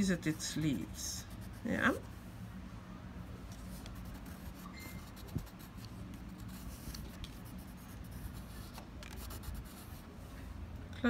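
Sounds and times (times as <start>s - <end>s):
steady low hum: 0.0s - 11.0s
crayon scratching on paper: 0.2s - 2.0s, 3.7s - 10.0s.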